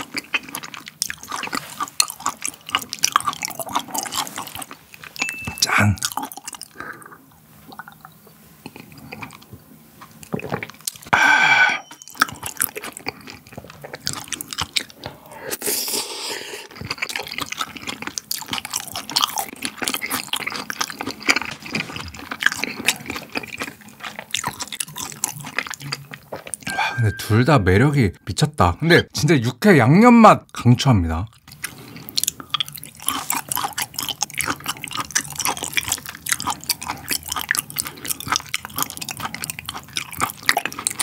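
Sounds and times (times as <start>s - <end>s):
wet chewing and smacking: 0.0s - 11.1s, 11.8s - 15.1s, 16.6s - 26.7s, 31.3s - 41.0s
person sipping liquor: 11.1s - 12.0s.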